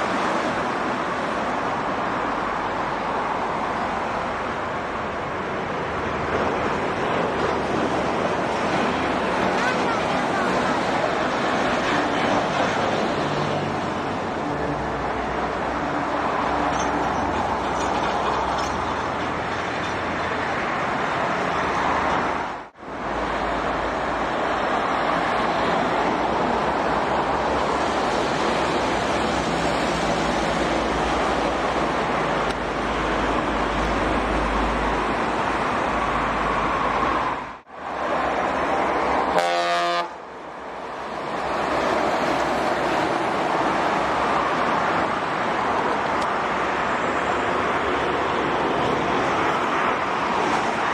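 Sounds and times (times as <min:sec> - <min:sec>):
trucks driving past: 0:00.0 - 0:50.9
vehicle horn honking: 0:39.3 - 0:40.2.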